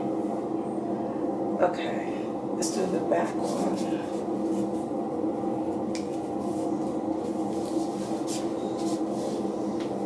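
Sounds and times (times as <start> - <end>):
droning hum: 0.0 - 10.0
hands rustling in hair: 6.0 - 9.5.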